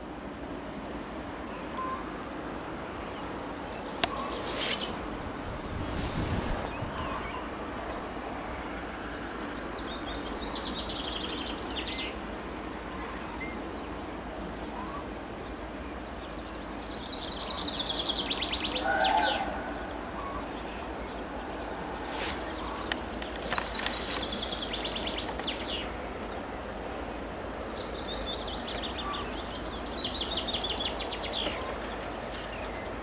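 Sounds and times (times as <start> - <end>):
steady background noise: 0.0 - 33.0
songbird trilling: 3.7 - 5.0, 22.1 - 26.0, 27.2 - 33.0.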